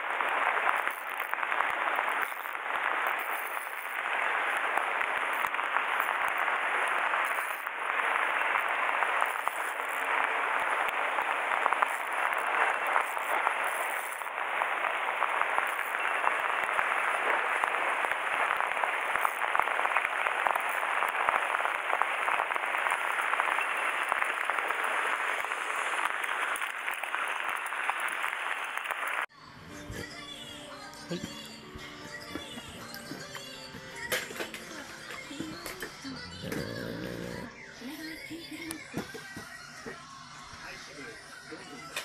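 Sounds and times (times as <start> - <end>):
heavy rain: 0.0 - 29.3.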